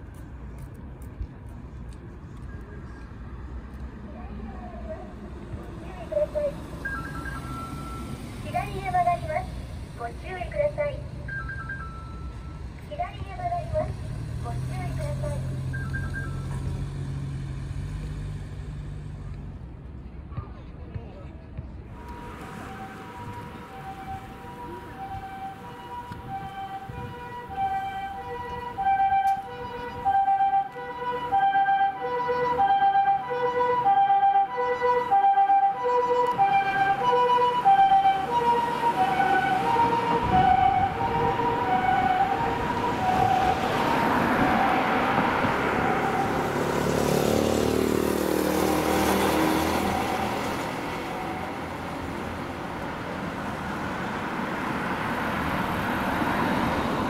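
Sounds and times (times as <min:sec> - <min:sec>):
passing traffic: 0:00.0 - 0:57.0
two-tone ambulance siren: 0:06.0 - 0:17.1, 0:22.0 - 0:53.1.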